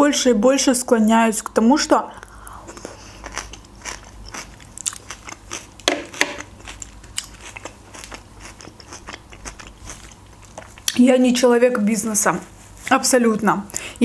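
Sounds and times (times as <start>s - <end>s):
person chewing salad: 2.2s - 11.0s.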